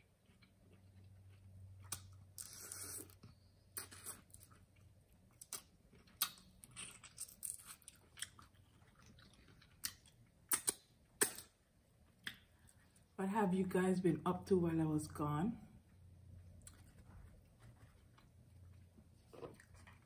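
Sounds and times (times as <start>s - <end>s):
chewing with wet lip smacks: 0.0s - 12.8s
sharp mouth clicks: 10.5s - 11.5s.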